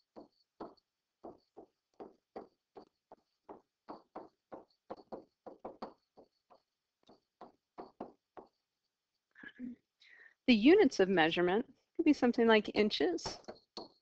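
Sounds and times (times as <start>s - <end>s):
stylus tapping and scratching: 0.0s - 9.3s, 13.1s - 14.0s.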